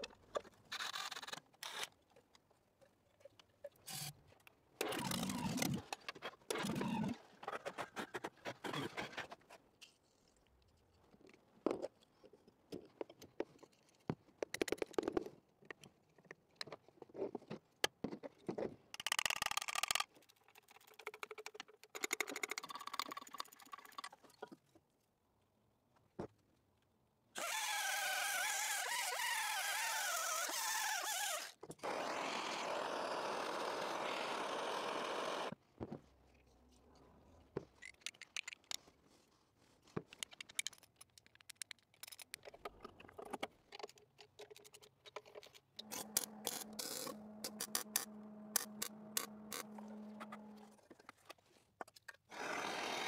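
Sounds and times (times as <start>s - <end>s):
tool clicks and scrapes: 39.9s - 52.4s.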